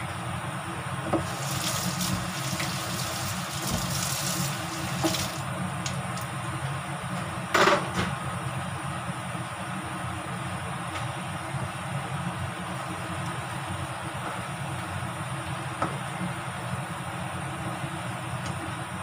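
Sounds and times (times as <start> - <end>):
low kitchen hum: 0.0 - 19.0
sauce bubbling in a pan: 1.2 - 5.4.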